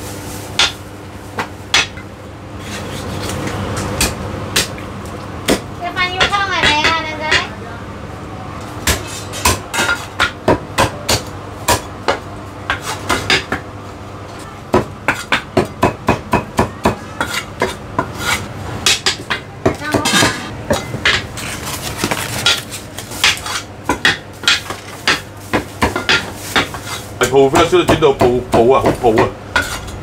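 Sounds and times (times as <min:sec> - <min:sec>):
cleaver chopping meat on wooden block: 0:05.4 - 0:06.9, 0:08.8 - 0:13.6, 0:14.7 - 0:18.1, 0:23.2 - 0:29.3.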